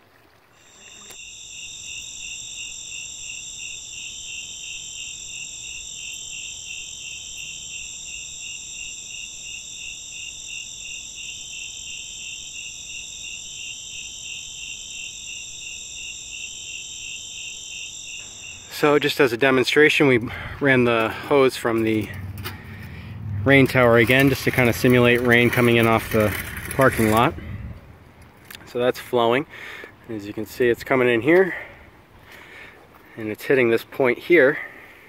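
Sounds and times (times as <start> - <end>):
cricket chirps: 0.6 - 19.5
insects trilling: 0.6 - 21.8.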